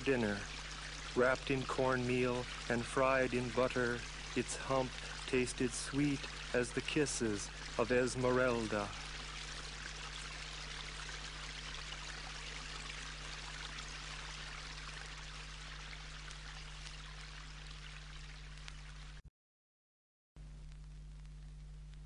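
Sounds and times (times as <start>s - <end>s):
recording hiss: 0.0s - 19.2s.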